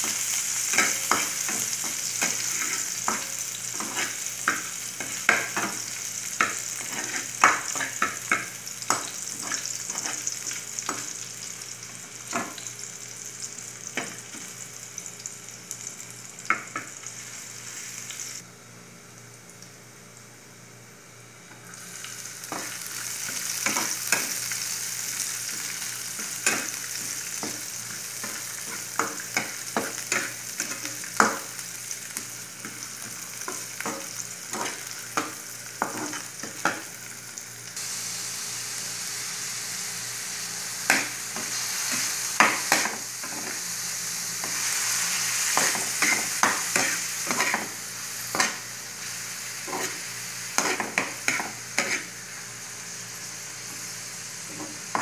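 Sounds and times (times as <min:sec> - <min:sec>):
food sizzling in a frying pan: 0:00.0 - 0:18.4, 0:21.0 - 0:55.0
metal spatula scraping a pan: 0:50.6 - 0:52.1.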